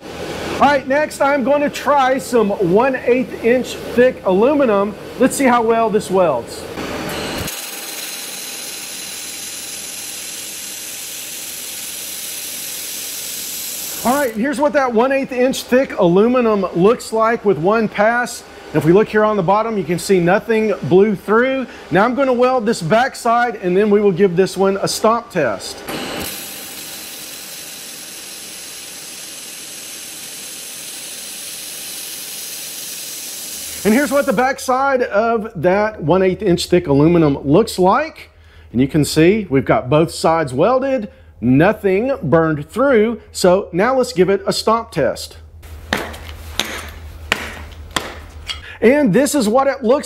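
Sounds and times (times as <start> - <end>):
laser welder hissing and crackling: 7.3 - 14.4, 26.2 - 34.6.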